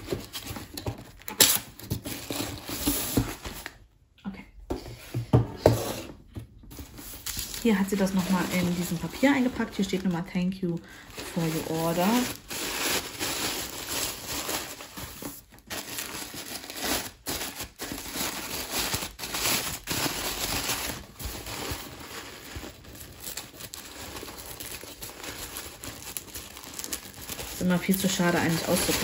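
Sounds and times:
tissue paper crinkling: 6.7 - 29.0.

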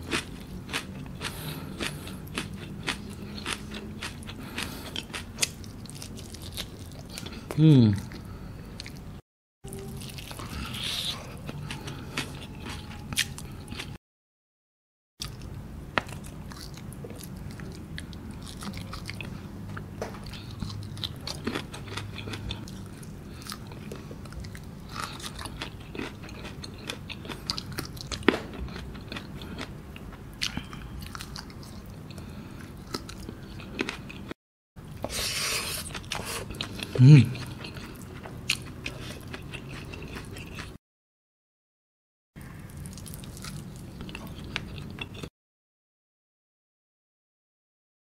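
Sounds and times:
close chewing with mouth clicks: 0.0 - 8.2, 20.2 - 34.4, 35.0 - 40.8, 42.7 - 45.3.

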